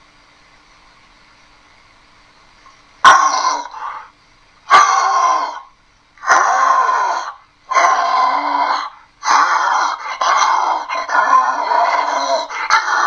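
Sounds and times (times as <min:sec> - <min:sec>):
person roaring through a tube: 0:04.7 - 0:13.0.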